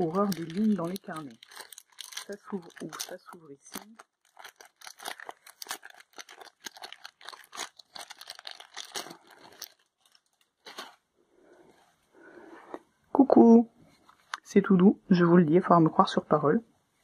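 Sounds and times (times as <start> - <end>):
plastic bag crinkling: 0.0 - 11.1.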